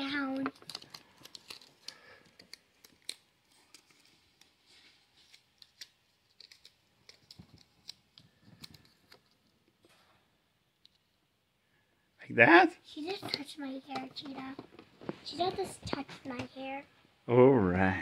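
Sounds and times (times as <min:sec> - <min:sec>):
plastic toy pieces clicking: 0:00.3 - 0:03.9.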